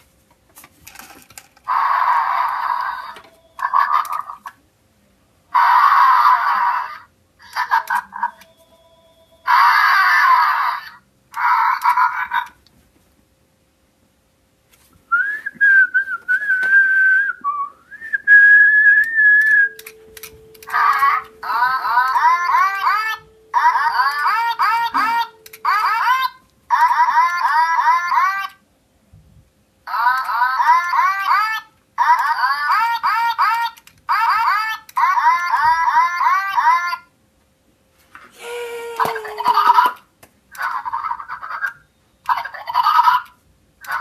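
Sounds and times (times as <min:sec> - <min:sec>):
toy dinosaur roar from speaker: 0:01.7 - 0:04.4, 0:05.5 - 0:07.1, 0:09.5 - 0:11.8
toy electronic warbling chirps: 0:01.7 - 0:04.5, 0:07.4 - 0:10.8, 0:19.4 - 0:27.9
person whistling held notes: 0:15.1 - 0:19.9.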